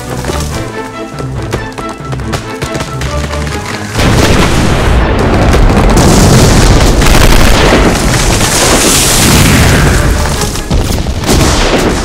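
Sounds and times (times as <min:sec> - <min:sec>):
explosions and gunfire: 0:03.9 - 0:12.0.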